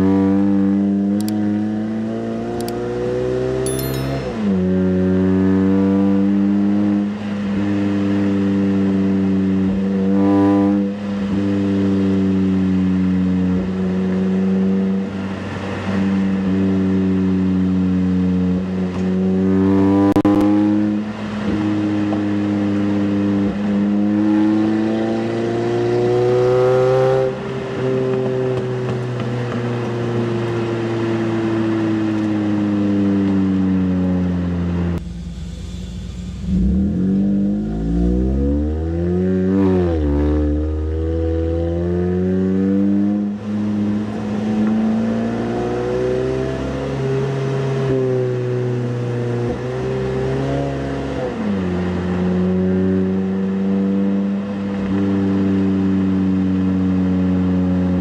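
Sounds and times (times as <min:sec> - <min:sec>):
car engine exhaust revving: 0:34.8 - 0:55.0.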